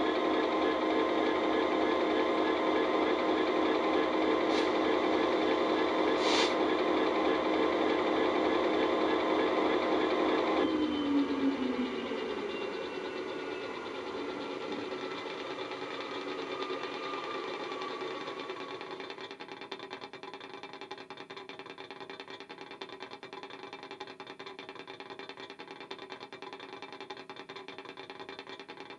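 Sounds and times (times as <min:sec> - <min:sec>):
diesel engine idling: 0:00.0 - 0:19.1
electronic whine falling in pitch: 0:00.0 - 0:19.2.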